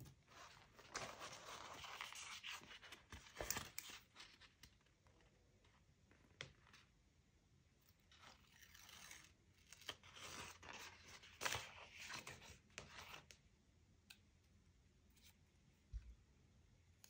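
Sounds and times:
paper rustling and scraping: 0:00.3 - 0:04.5.

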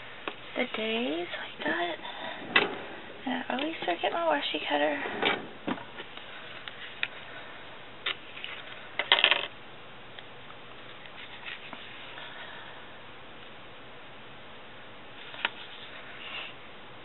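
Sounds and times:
paper rustling: 0:10.8 - 0:12.2.

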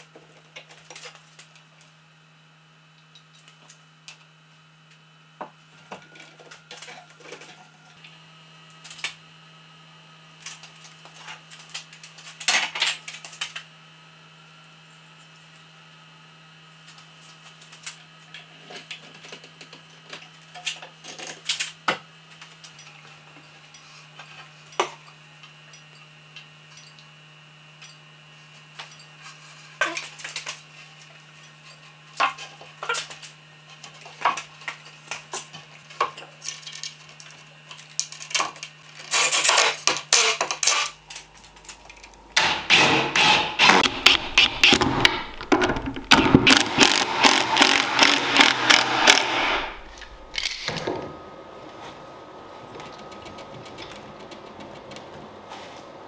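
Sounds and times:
wooden parts clacking and tapping: 0:43.2 - 0:49.3.

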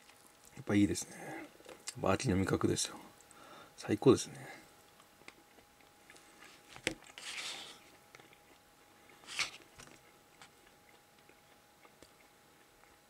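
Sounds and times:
soft chewing: 0:00.0 - 0:02.0, 0:04.6 - 0:13.0.

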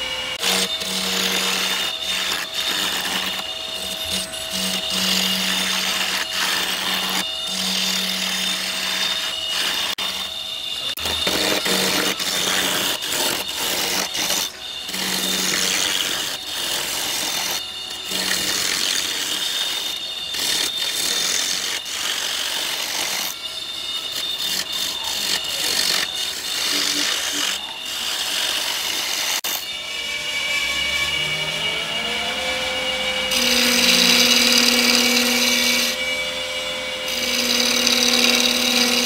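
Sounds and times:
wood lathe tool scraping wood: 0:00.0 - 0:29.7, 0:30.4 - 0:36.1, 0:37.1 - 0:39.0.

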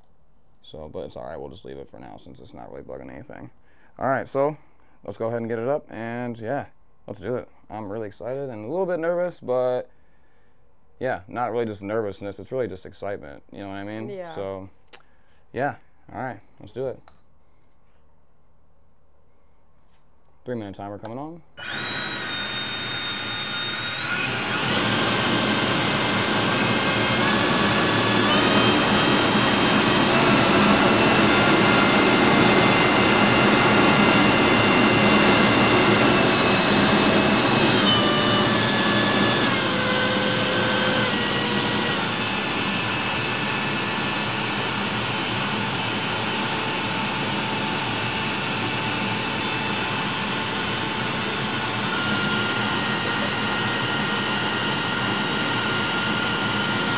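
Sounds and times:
electric ducted fan whine: 0:21.6 - 0:56.9.

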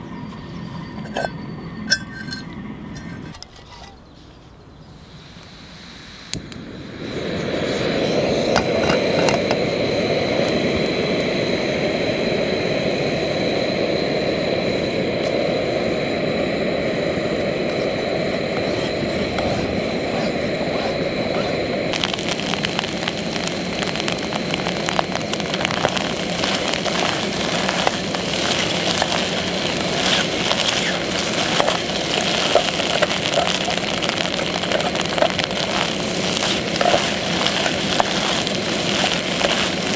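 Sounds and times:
gas burner roaring: 0:00.0 - 0:04.2, 0:04.8 - 0:39.9
eggs sizzling: 0:17.0 - 0:39.9
spoon stirring in pot: 0:25.4 - 0:39.9.

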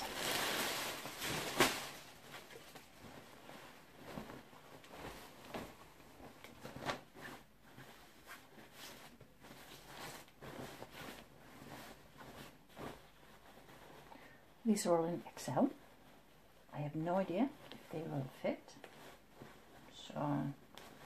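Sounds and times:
sharp plastic crinkle: 0:00.0 - 0:05.7
clothing and plastic rustling: 0:00.0 - 0:21.0.

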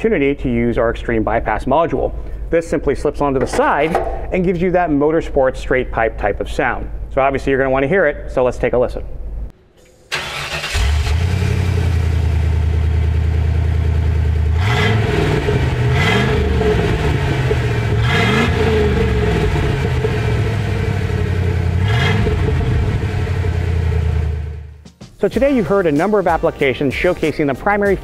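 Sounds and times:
loud engine exhaust revving: 0:10.2 - 0:24.8.

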